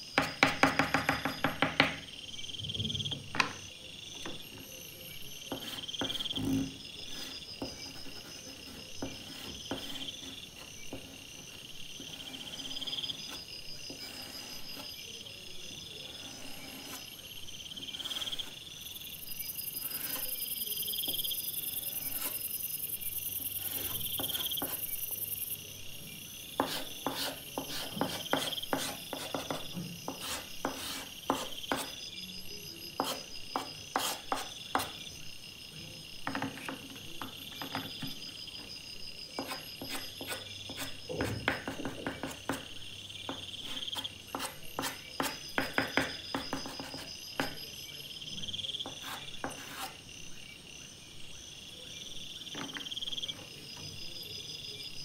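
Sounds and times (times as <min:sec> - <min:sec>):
insects chirping: 0:00.0 - 0:55.0
pastel scratching on sandpaper: 0:12.0 - 0:14.9, 0:26.6 - 0:32.0, 0:33.9 - 0:34.5, 0:49.0 - 0:50.0.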